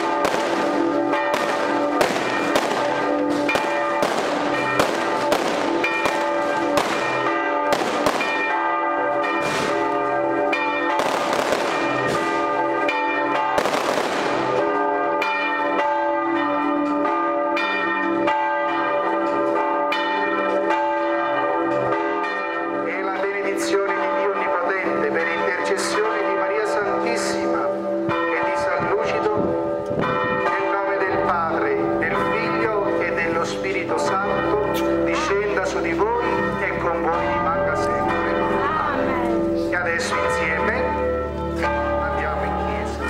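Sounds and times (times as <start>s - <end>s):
firecrackers banging: 0.0s - 15.0s
church bells ringing: 0.0s - 43.0s.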